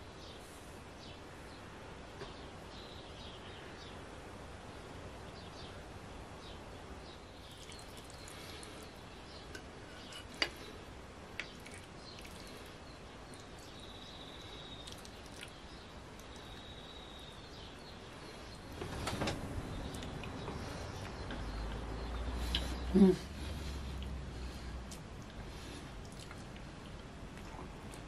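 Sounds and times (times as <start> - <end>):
low room noise: 0.0 - 28.0
faint high bird chirps: 11.4 - 23.2.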